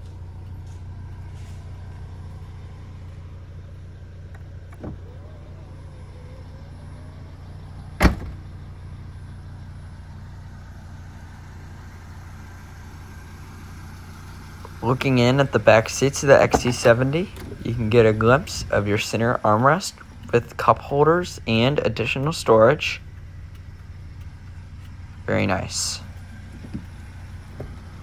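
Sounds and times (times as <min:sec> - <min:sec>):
car engine idling: 0:00.0 - 0:28.0
power tailgate whine: 0:00.0 - 0:28.0
tailgate latching thud: 0:04.3 - 0:05.1, 0:08.0 - 0:08.4.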